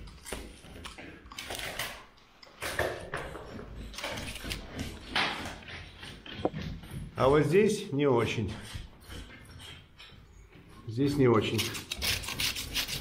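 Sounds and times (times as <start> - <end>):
metal blade scraping plaster: 11.3 - 13.0.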